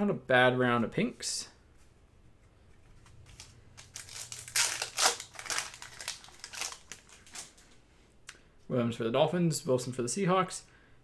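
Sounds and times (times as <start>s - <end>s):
foil wrapper crinkling: 3.2s - 7.6s.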